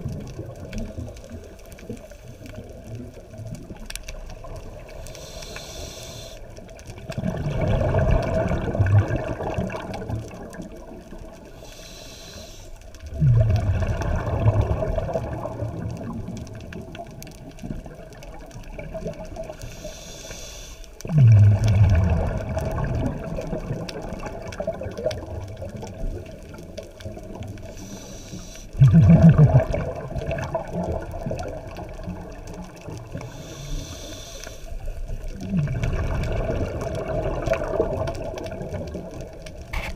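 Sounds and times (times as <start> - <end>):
exhaled bubbles gushing: 0.0 - 5.0, 6.8 - 11.6, 13.0 - 19.6, 21.0 - 27.8, 28.8 - 33.4, 34.9 - 39.9
regulator inhale hiss: 4.9 - 6.6, 11.4 - 12.9, 19.6 - 21.1, 27.6 - 28.8, 33.1 - 35.0.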